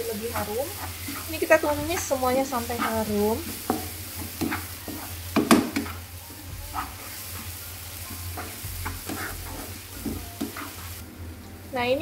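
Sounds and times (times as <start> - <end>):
paste sizzling in oil: 0.0 - 11.0
spatula scraping wok: 0.0 - 11.1.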